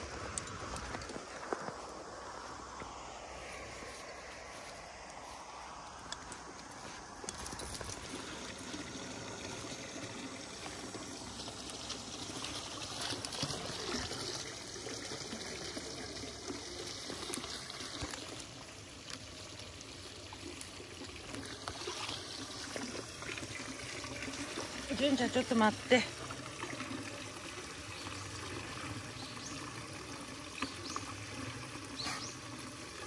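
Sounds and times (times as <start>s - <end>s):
grass and leaves rustling: 0.0s - 14.6s, 15.4s - 26.0s
water trickling: 3.8s - 33.0s.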